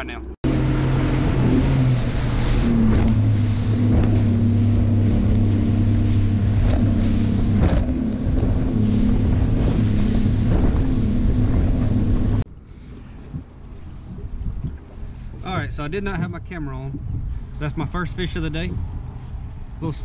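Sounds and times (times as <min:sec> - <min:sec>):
outboard motor drone: 0:00.0 - 0:20.0
wind buffeting microphone: 0:00.4 - 0:20.0
hull slapping on waves: 0:00.5 - 0:17.8
rush of wind and water: 0:00.5 - 0:20.0.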